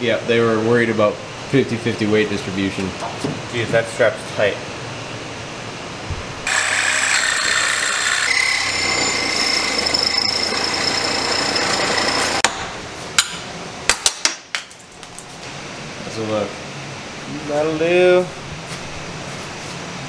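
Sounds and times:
power tool cutting steel: 6.5s - 12.5s.

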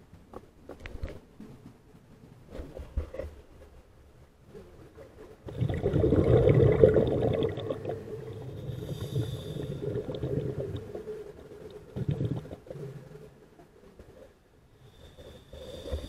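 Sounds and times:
underwater bubbles burbling: 5.5s - 12.9s.

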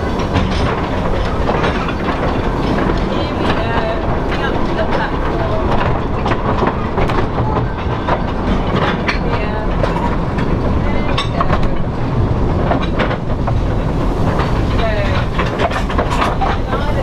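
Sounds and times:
train running gear rumble: 0.0s - 17.0s
wheels clacking on track: 0.0s - 17.0s.

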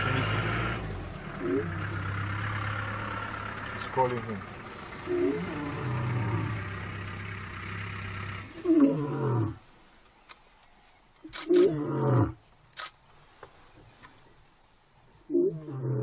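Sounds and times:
lion roaring: 0.0s - 3.4s, 4.9s - 9.6s, 11.4s - 12.4s, 15.3s - 16.0s.

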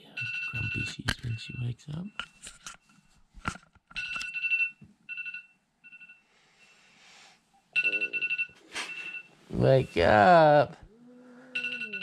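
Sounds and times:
alarm beeping: 7.7s - 10.6s, 11.5s - 12.0s.

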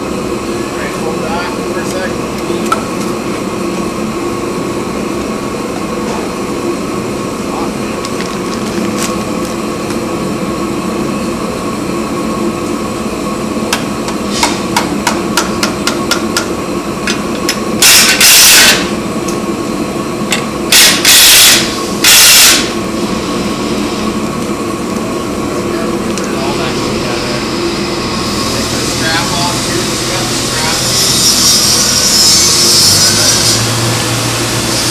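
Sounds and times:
workshop hum: 0.0s - 34.9s
cordless power driver bursts: 20.7s - 22.7s.

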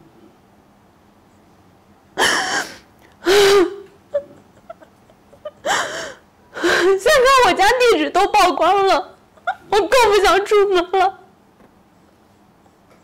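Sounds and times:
woman sobbing: 2.2s - 7.9s, 8.8s - 11.2s.

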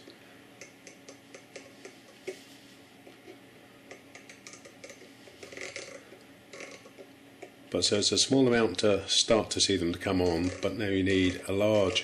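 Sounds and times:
rotary encoder clicks: 3.9s - 7.6s, 10.1s - 12.0s.

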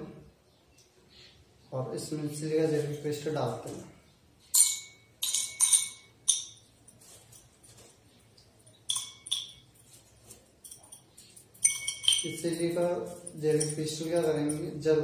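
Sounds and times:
beads clinking against glass: 4.4s - 14.8s.

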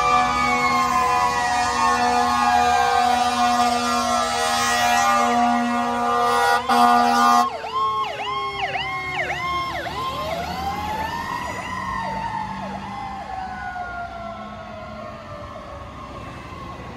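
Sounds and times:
fire truck air horn: 0.0s - 7.6s.

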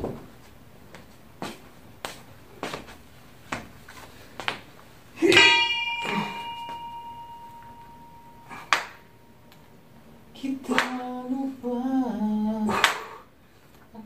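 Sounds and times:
dumbbells ringing metallically: 5.2s - 11.0s.

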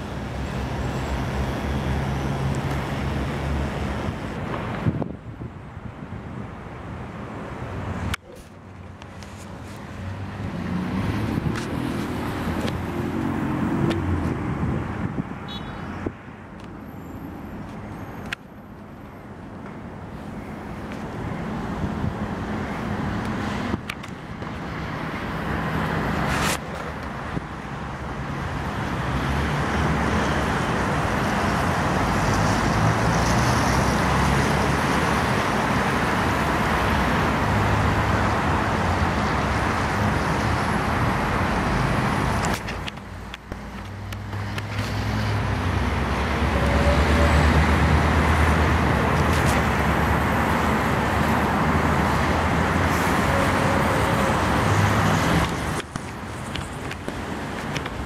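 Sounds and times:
diesel locomotive engine drone: 44.3s - 58.0s.

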